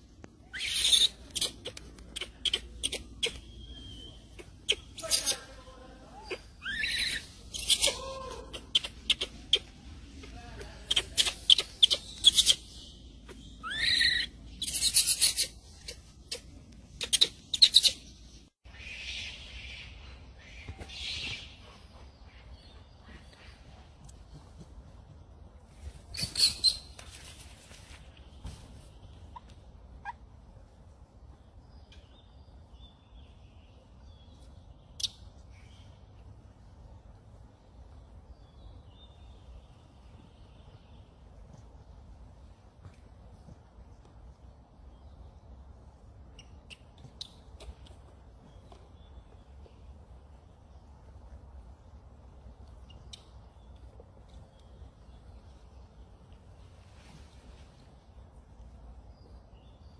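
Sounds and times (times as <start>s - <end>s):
monkey squeak: 0.5s - 3.4s, 4.4s - 5.4s, 6.2s - 9.7s, 10.9s - 12.7s, 13.3s - 18.0s, 26.1s - 26.9s.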